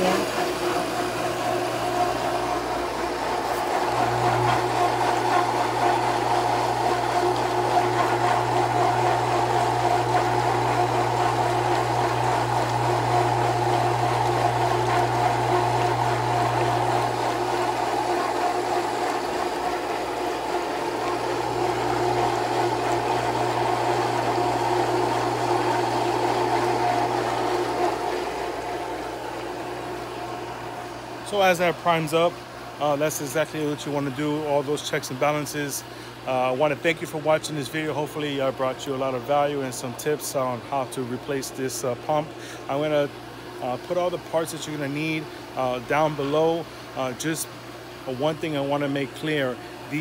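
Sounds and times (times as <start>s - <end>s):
water churning: 0.0s - 32.7s
pool pump motor hum: 0.0s - 50.0s.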